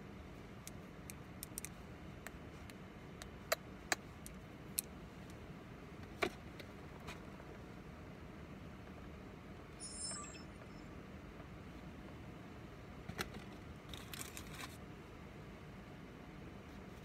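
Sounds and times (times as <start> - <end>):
low hum inside car: 0.0 - 17.0
handling clicks and crinkle: 0.6 - 5.4, 13.1 - 14.8.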